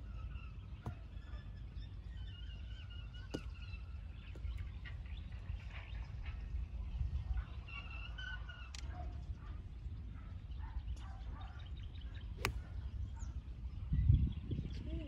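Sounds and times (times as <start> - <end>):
low wind rumble: 0.0 - 15.0
golf club striking ball: 12.4 - 12.6.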